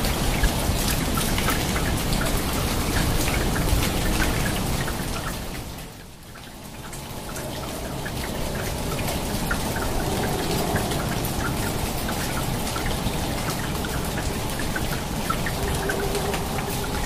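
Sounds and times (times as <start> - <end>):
rain pattering on leaves: 0.0 - 17.0.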